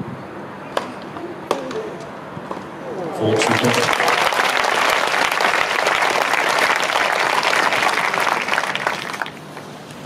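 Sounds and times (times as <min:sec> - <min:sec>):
crowd applauding: 0:03.2 - 0:09.6.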